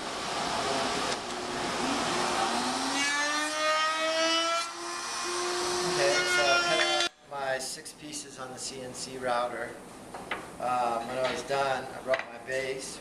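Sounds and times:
wood router motor whine: 0.5s - 7.1s.

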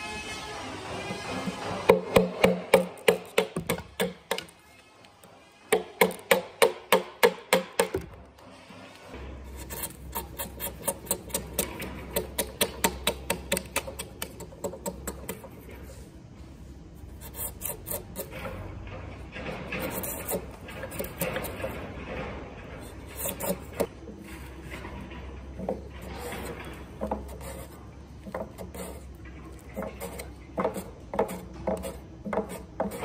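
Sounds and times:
hammer striking chisel into wood: 1.9s - 4.5s, 5.7s - 8.2s.

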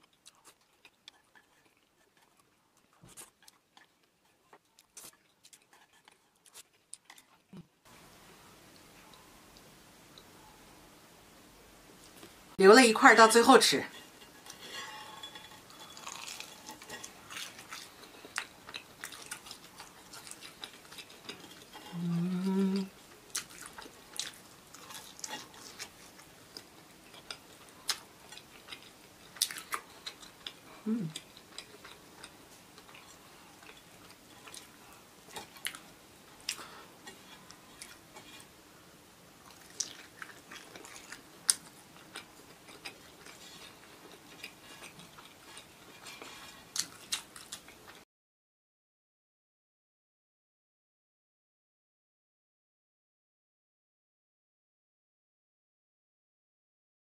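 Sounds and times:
chewing crunchy fried food: 0.0s - 7.7s, 13.9s - 22.0s, 22.9s - 38.6s, 39.3s - 48.0s
person humming: 21.9s - 23.0s, 30.8s - 31.2s.

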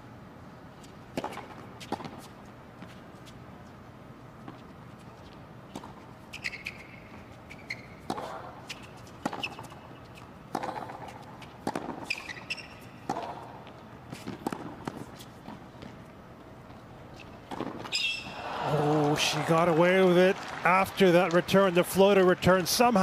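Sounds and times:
rackets hitting tennis balls: 1.0s - 3.0s, 5.7s - 23.0s
sneakers squeaking on court: 4.4s - 18.4s.

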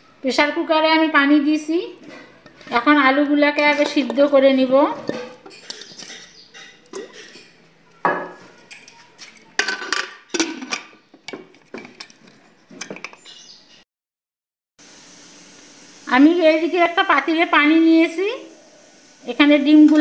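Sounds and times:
potatoes knocking in metal pot: 2.6s - 7.4s.

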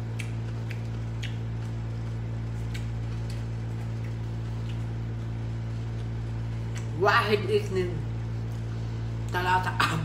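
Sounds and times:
person chewing: 0.0s - 6.9s
low electrical hum: 0.0s - 10.0s.

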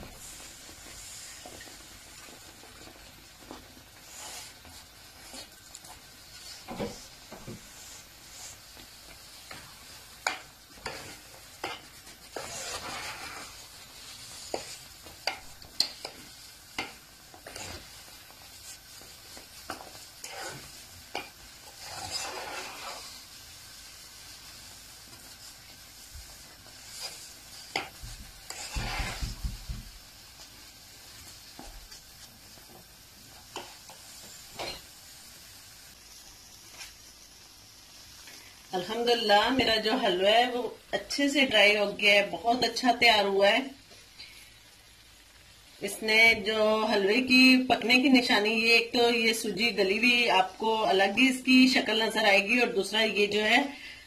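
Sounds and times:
faint sizzle: 0.0s - 54.0s
spoon scraping pan: 0.1s - 35.2s.

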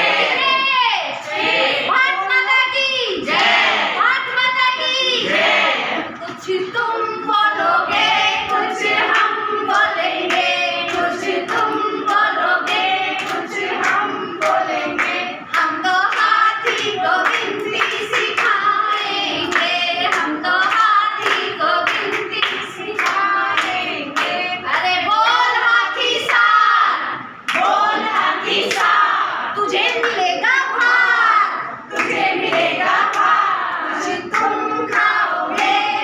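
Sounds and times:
women singing together: 0.0s - 36.0s
hands clapping in a beat: 8.5s - 24.4s, 29.8s - 30.3s, 31.9s - 35.8s.

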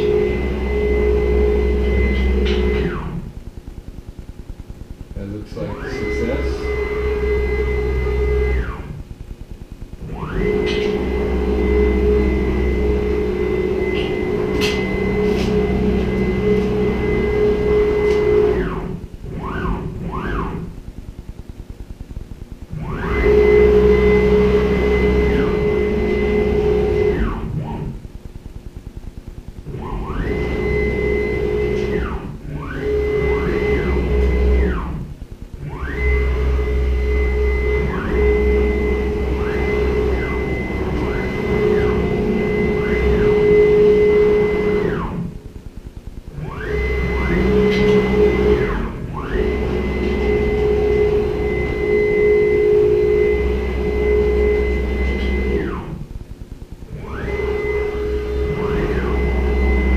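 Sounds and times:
stepper motors whining: 0.0s - 4.2s, 5.0s - 9.3s, 9.9s - 20.8s, 22.6s - 28.1s, 29.6s - 56.2s, 56.8s - 59.9s
low hum: 0.0s - 59.9s.

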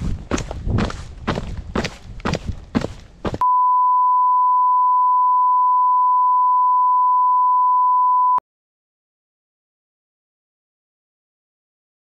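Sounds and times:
footstep crunching in snow: 0.0s - 3.4s
loud steady beep tone: 3.4s - 8.4s.

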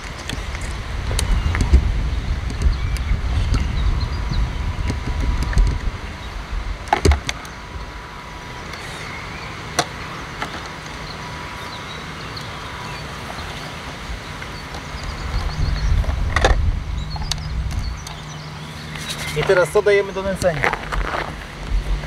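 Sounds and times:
wind rumble on microphone: 0.0s - 22.0s
sharp plastic clicks and knocks: 6.9s - 7.5s.

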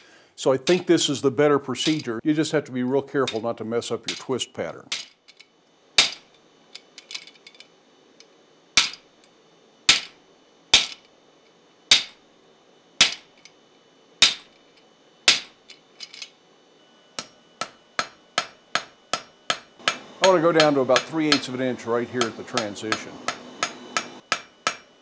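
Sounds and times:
hammer striking metal: 1.8s - 2.1s, 3.2s - 3.4s, 6.0s - 6.3s, 8.8s - 9.0s, 9.9s - 10.2s, 10.8s - 11.0s, 11.9s - 12.2s, 13.0s - 13.3s, 14.2s - 14.5s, 15.3s - 15.6s, 17.2s - 25.0s.

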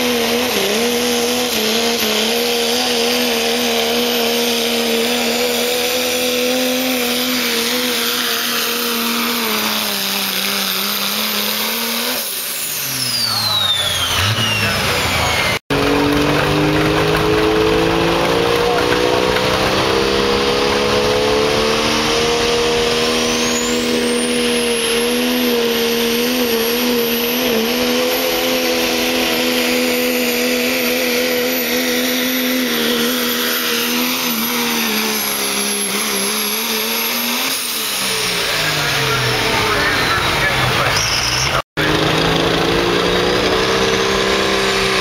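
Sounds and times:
diesel engine at full throttle: 0.0s - 45.0s
high turbo whistle: 6.4s - 15.6s, 21.7s - 38.8s.

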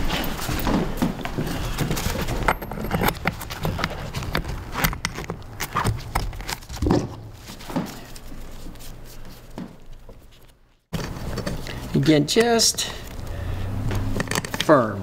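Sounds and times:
metal clicks knocks and scrapes: 1.8s - 7.2s, 13.9s - 14.8s.

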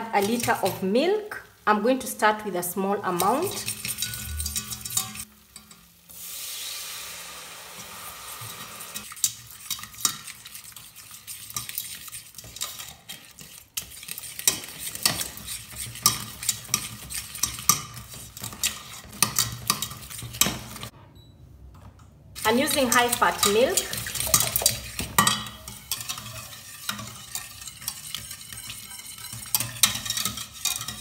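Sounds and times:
whisk scraping metal pot: 0.0s - 0.9s, 3.0s - 5.7s, 8.4s - 20.9s, 22.4s - 31.0s
milk sizzling in hot pan: 0.0s - 20.9s, 22.4s - 31.0s.

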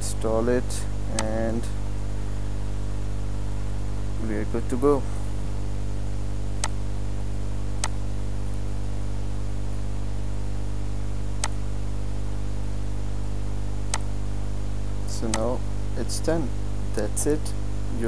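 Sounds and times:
electrical mains hum: 0.0s - 18.0s
computer mouse clicks: 7.8s - 8.0s, 11.4s - 11.6s.

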